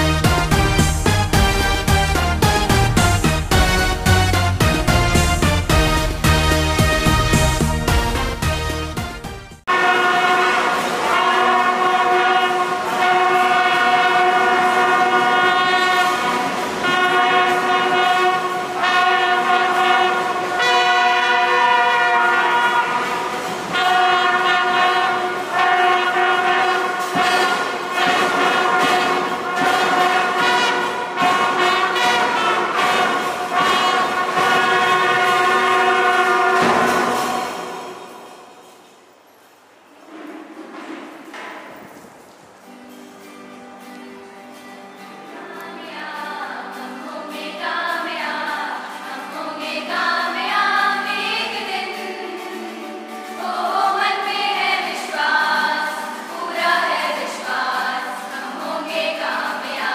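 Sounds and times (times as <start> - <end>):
brass band playing long notes: 0.0 - 38.8.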